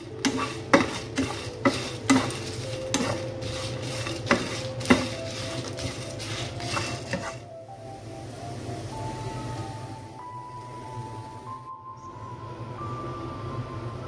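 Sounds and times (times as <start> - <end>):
spatula scraping spices in a pan: 0.0 - 7.5
spatula knocking against pan: 0.1 - 7.4.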